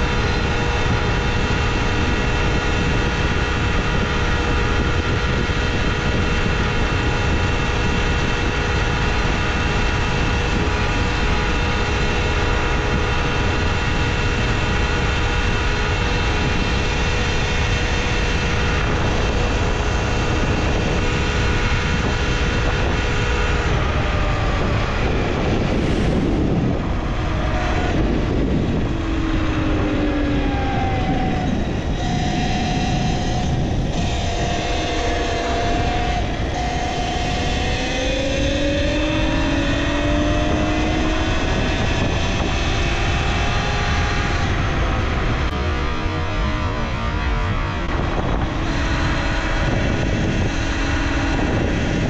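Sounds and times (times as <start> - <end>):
electric motor whining: 0.0 - 52.0
wind noise on microphone: 0.0 - 52.0.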